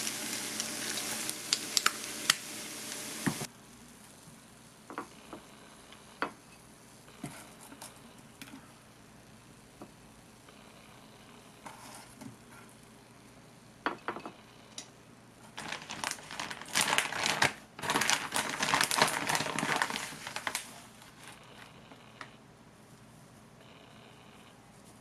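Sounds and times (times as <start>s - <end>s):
plastic packet crinkling: 0.0s - 3.4s, 15.5s - 21.4s.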